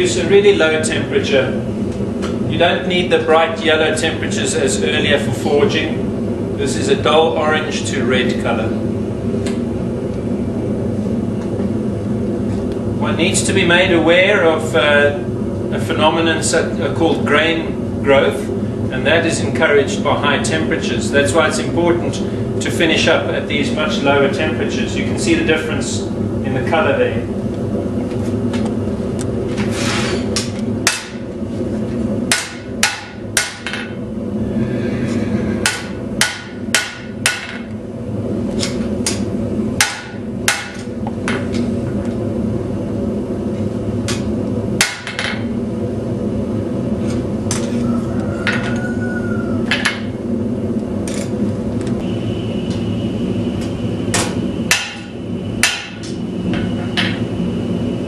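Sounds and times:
gas forge burner rushing: 0.0s - 58.0s
hammer striking blade on anvil: 32.3s - 33.9s, 35.6s - 37.6s, 54.2s - 56.0s.

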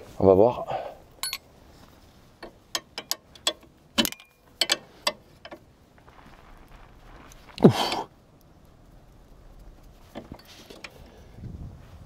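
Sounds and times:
tools clicking and knocking: 1.2s - 1.4s, 2.4s - 5.6s.

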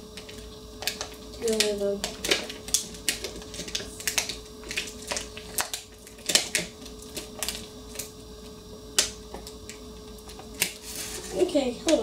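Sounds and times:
faint steady hum: 0.0s - 12.0s
plastic packaging clicking and crackling: 0.2s - 8.2s.

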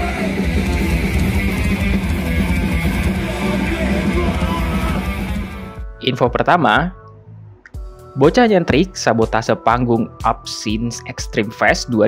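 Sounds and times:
distorted electric guitar: 0.0s - 5.9s
heavy metal music: 0.0s - 7.0s, 7.7s - 12.0s.

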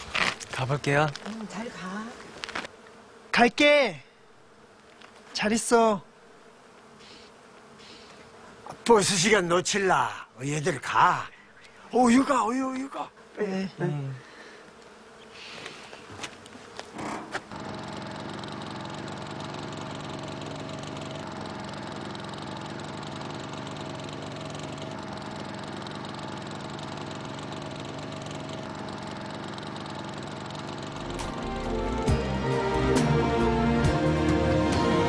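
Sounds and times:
engine running: 17.2s - 35.0s.

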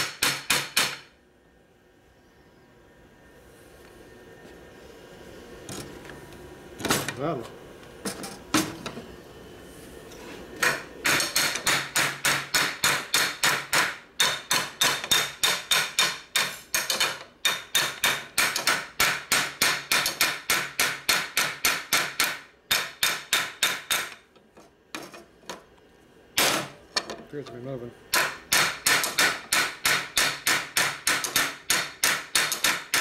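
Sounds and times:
hammer striking steel: 0.0s - 1.1s, 10.6s - 24.2s, 28.1s - 33.0s.

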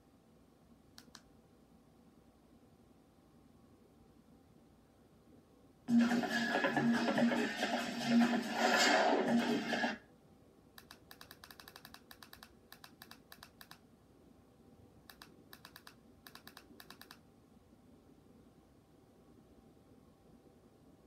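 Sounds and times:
remote control buttons clicking: 1.0s - 1.3s, 10.8s - 13.8s, 15.1s - 17.2s
tv music: 5.9s - 10.0s.

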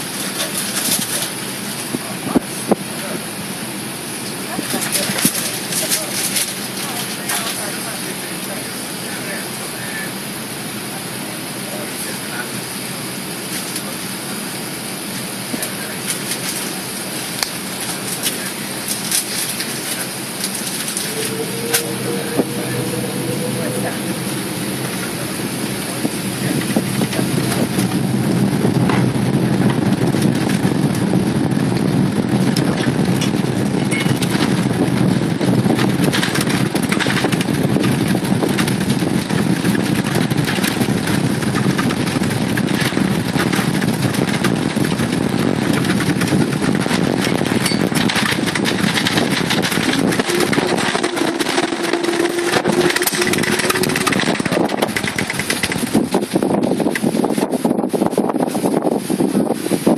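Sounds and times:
jet engines roaring: 0.0s - 58.0s
steady hum: 18.8s - 31.5s, 49.4s - 56.9s.

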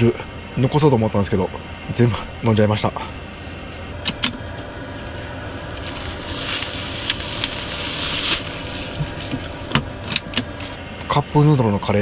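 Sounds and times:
plastic bag rustling: 5.1s - 10.8s.

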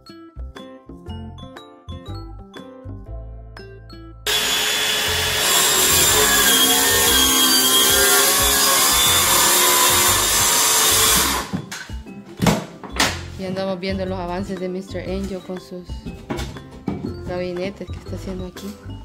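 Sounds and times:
light plucked background music: 0.0s - 19.0s
circular saw cutting plywood: 4.3s - 11.5s.

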